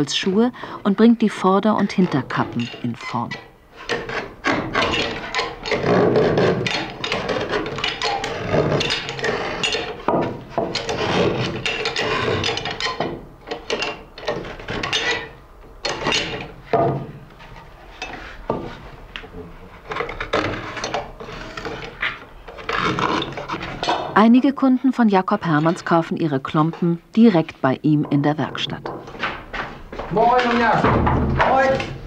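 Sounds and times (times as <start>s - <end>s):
sharp knocks: 3.8s - 15.2s, 15.8s - 17.2s, 27.9s - 32.0s.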